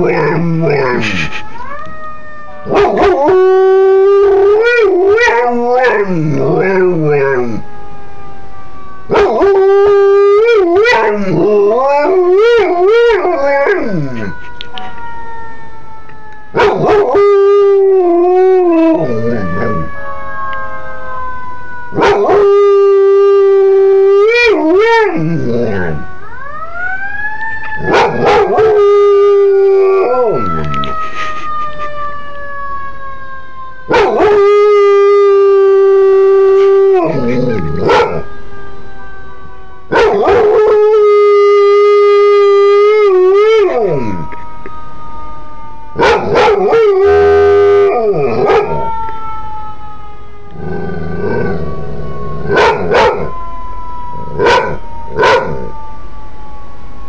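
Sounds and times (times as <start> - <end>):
emergency vehicle sirens wailing: 0.0 - 57.0
dog howling: 2.7 - 7.6, 16.6 - 19.9, 27.8 - 30.9, 33.9 - 38.3, 39.9 - 44.4, 46.0 - 49.1, 50.5 - 53.4, 54.2 - 55.7.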